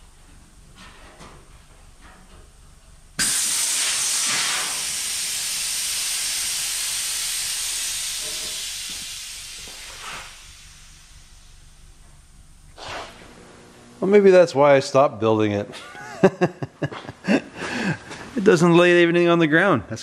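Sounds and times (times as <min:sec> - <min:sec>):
compressed air hissing: 0:03.2 - 0:12.0, 0:12.7 - 0:13.4.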